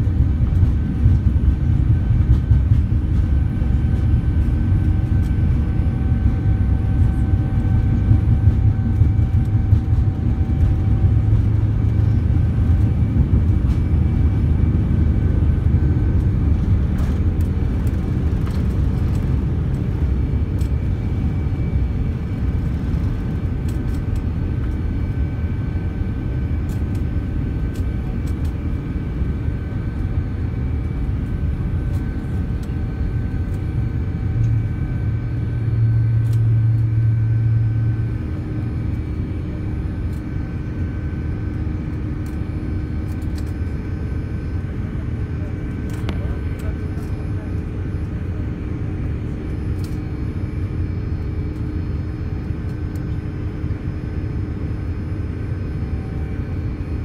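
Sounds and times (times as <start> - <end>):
runway rumble: 0.0 - 24.7
jet engines at takeoff power: 0.0 - 57.0.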